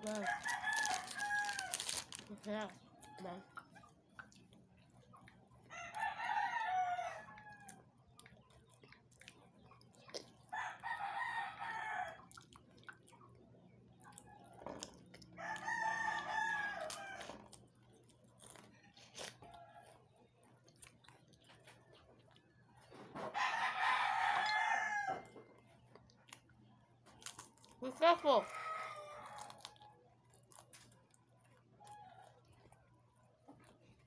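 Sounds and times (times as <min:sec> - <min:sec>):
crackers being chewed: 0:00.0 - 0:23.2, 0:24.2 - 0:27.9, 0:28.5 - 0:34.0
rooster crowing: 0:00.1 - 0:02.0, 0:05.7 - 0:07.8, 0:10.6 - 0:12.2, 0:15.4 - 0:17.4, 0:23.3 - 0:25.4, 0:28.3 - 0:29.8.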